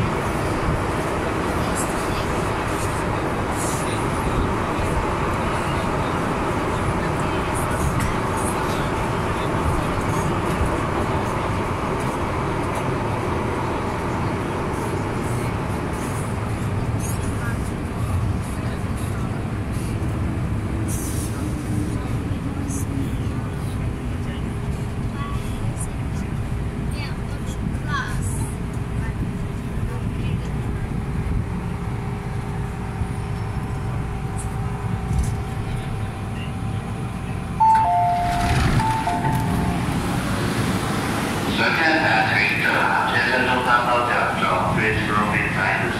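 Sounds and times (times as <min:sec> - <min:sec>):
train rumble and rail noise: 0:00.0 - 0:45.9
two-note door chime: 0:37.6 - 0:39.8.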